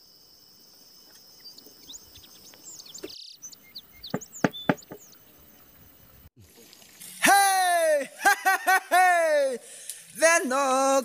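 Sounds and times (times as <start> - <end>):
birds chirping: 0.8 - 6.3
sharp knocks: 4.1 - 5.0.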